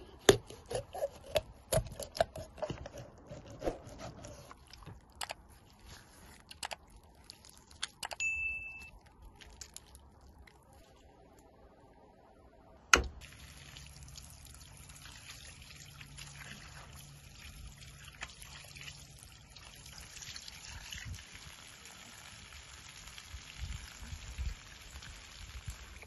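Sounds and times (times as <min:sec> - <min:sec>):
hose water on grass: 0:13.2 - 0:26.0.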